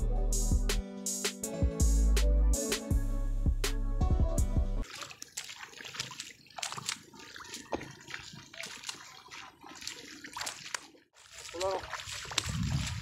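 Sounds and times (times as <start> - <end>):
water and mud splashing: 4.8 - 13.0.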